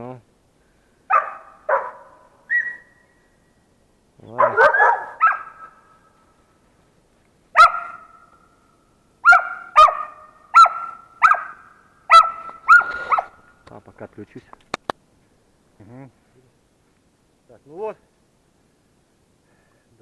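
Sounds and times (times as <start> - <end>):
dog barking: 1.1 - 2.9, 4.3 - 5.8, 7.5 - 8.2, 9.2 - 13.4.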